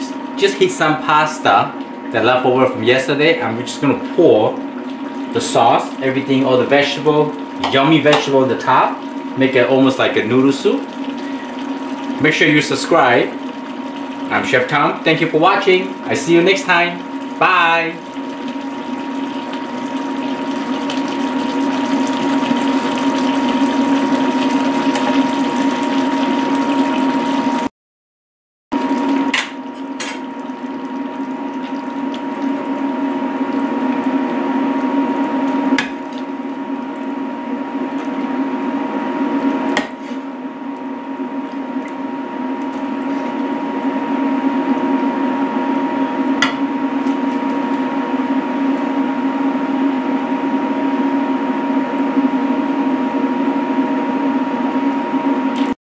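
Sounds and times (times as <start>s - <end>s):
steady hum with high whine: 0.0s - 27.7s, 28.8s - 55.8s
curry bubbling in pot: 3.8s - 27.7s, 28.8s - 40.0s.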